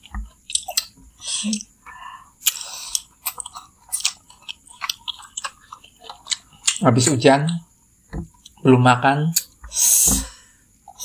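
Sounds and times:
wet chewing with smacking: 0.2s - 1.7s, 2.4s - 6.8s.

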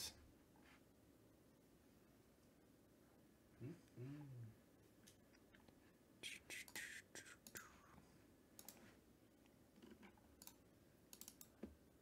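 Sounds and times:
computer mouse clicks: 8.6s - 8.8s, 9.8s - 11.7s.

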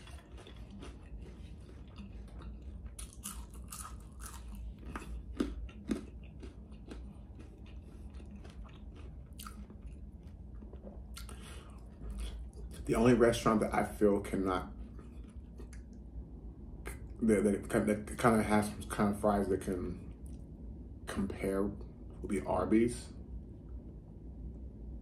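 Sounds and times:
person chewing crunchy fries: 0.0s - 16.0s.

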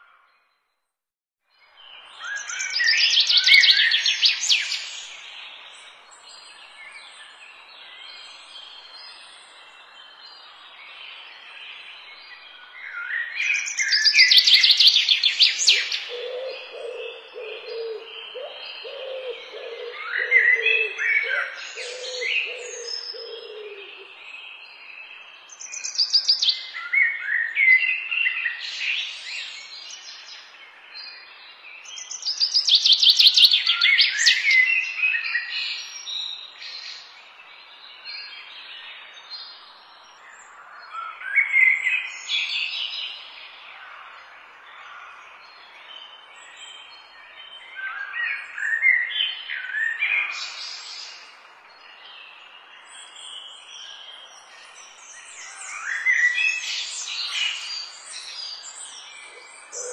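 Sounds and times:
birds singing: 1.6s - 59.9s.

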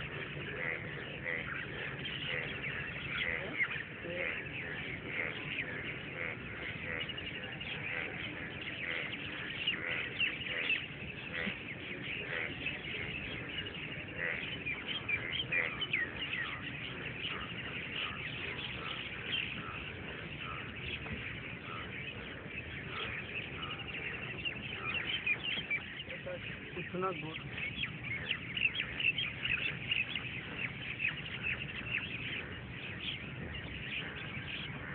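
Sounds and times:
dawn chorus of birds chirping: 0.0s - 34.9s.

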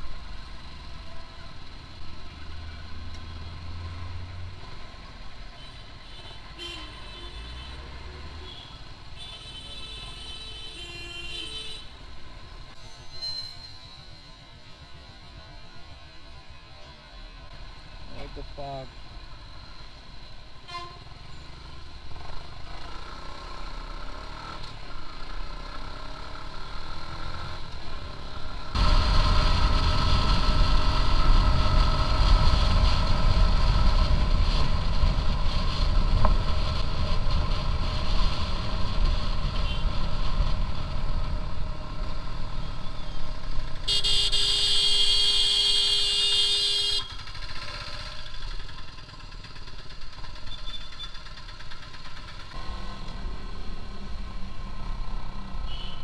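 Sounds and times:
vehicle horn blast: 20.7s - 21.1s, 43.9s - 47.1s, 55.7s - 56.0s
motorcycle engine: 21.5s - 56.0s
wind noise: 28.8s - 41.3s.

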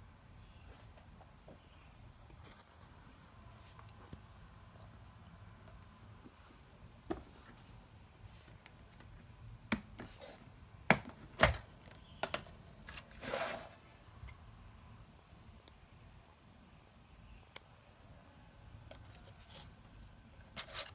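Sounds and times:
scraping rustle: 12.9s - 13.8s.

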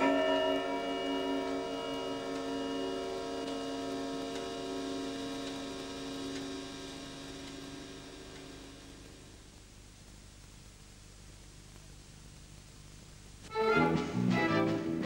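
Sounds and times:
clock chime bell tones: 0.0s - 9.0s
faint clock ticks: 0.0s - 13.2s.

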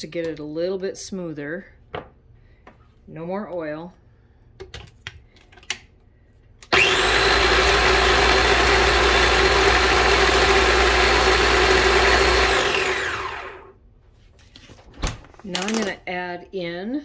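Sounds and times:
food processor motor running: 6.7s - 13.7s.

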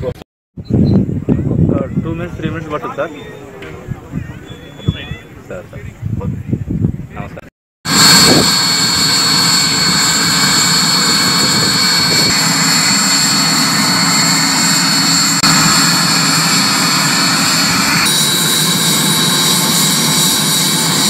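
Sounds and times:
helicopter turbine engine whine: 7.9s - 21.0s.

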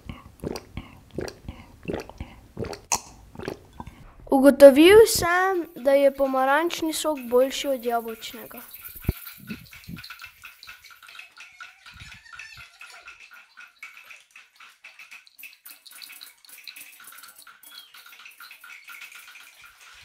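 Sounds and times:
juice pouring into cup: 0.0s - 4.0s.

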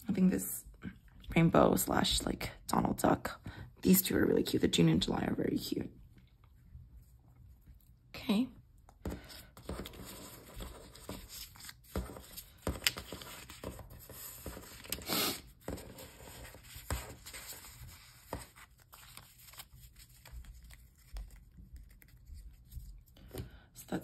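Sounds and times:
paper sheets rustling: 9.1s - 23.4s.

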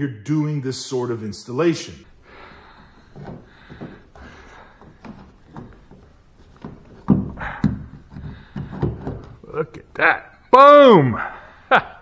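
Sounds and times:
soft rubs and knocks: 2.6s - 9.4s.

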